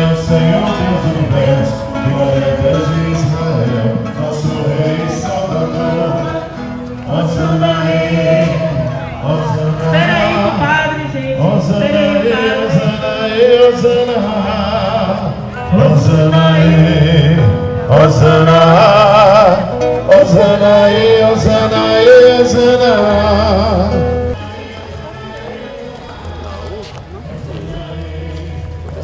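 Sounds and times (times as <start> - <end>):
person singing with vibrato: 0.0 - 29.0.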